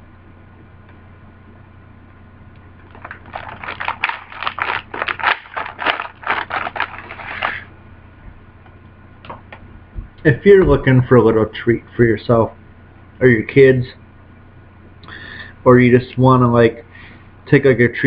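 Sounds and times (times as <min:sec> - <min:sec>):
cookie crunching: 0:02.8 - 0:07.6.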